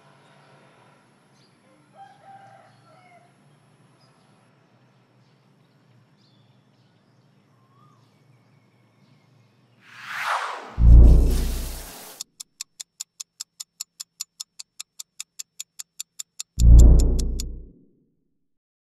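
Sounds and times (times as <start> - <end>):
rooster crowing: 1.7 - 3.4
faint bird chirps: 6.2 - 9.4.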